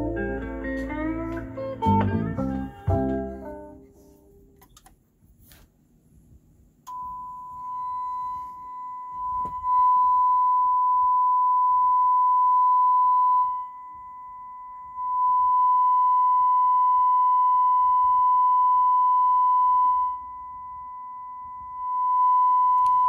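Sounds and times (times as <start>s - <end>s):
sine test tone: 6.8s - 23.0s.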